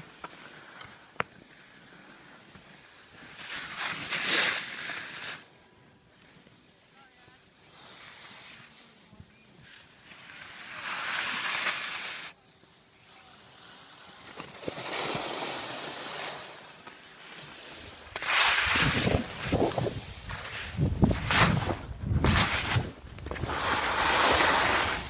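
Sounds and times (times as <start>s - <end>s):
skis scraping over snow: 0.0s - 12.4s, 13.0s - 25.0s
wind buffeting microphone: 18.6s - 23.6s.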